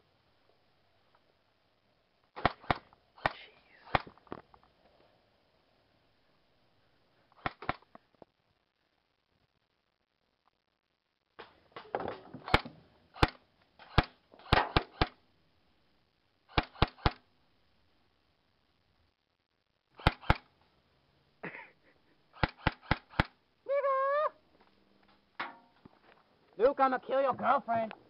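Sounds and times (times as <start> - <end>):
airsoft rifle shots cracking: 2.4 - 4.2, 7.4 - 7.9, 12.4 - 15.2, 16.5 - 17.2, 20.0 - 20.5, 22.4 - 23.4.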